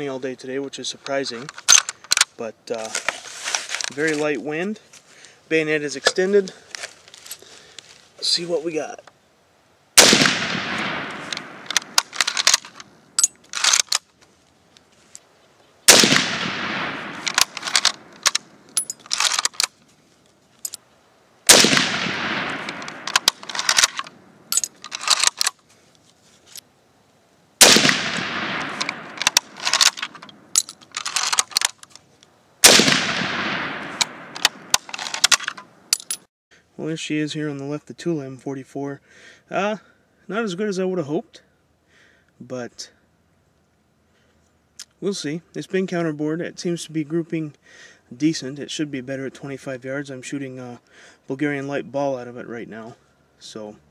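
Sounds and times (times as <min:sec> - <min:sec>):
rifle shots: 0:10.0 - 0:12.8, 0:15.9 - 0:18.5, 0:21.5 - 0:24.1, 0:27.6 - 0:30.2, 0:32.6 - 0:35.5
rifle bolt clicking: 0:10.0 - 0:14.0, 0:15.9 - 0:19.7, 0:21.5 - 0:25.6, 0:27.6 - 0:31.9, 0:32.7 - 0:36.2.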